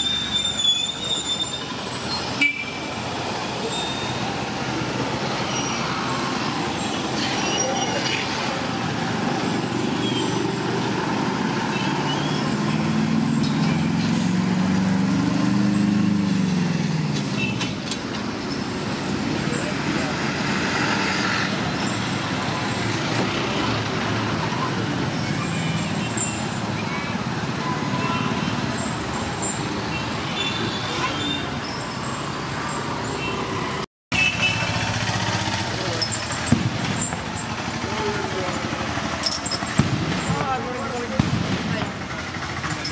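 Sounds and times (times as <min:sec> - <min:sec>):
road traffic noise: 0:00.0 - 0:42.9
vehicles passing on street: 0:00.0 - 0:42.9
vehicle engine passing: 0:08.4 - 0:17.4, 0:34.5 - 0:42.9.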